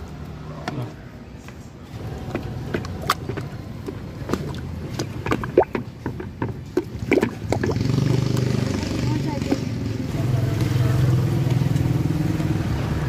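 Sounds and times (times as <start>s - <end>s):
engine hum: 0.0s - 13.0s
liquid sloshing: 2.0s - 8.8s
stick knocking against basin: 2.3s - 8.5s.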